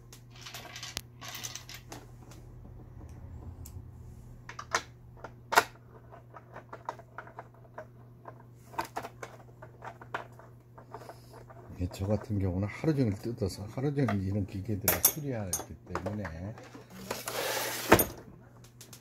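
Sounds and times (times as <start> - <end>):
plastic parts rubbing and scraping: 5.8 - 13.4, 16.0 - 18.1.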